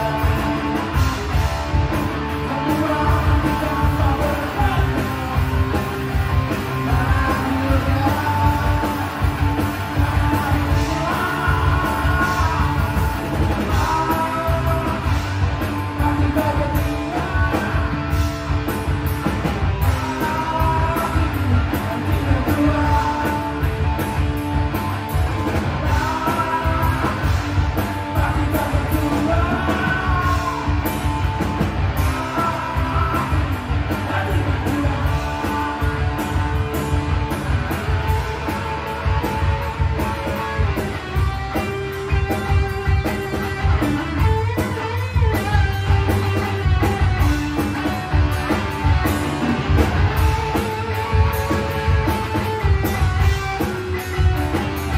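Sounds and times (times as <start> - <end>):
man singing: 0.0 - 1.1, 2.2 - 18.5, 19.8 - 24.2, 25.5 - 37.4
bass guitar: 0.0 - 54.9
drum kit: 0.0 - 54.9
electric guitar: 0.0 - 54.9.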